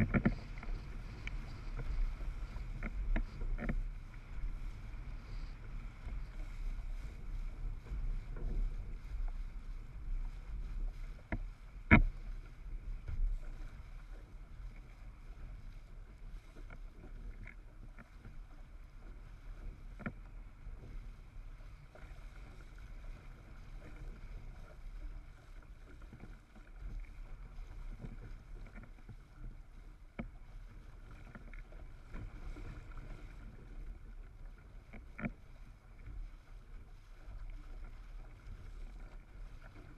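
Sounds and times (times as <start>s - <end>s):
faint ticks: 0.0s - 7.0s, 7.6s - 36.4s
wind and water rushing: 0.0s - 39.9s.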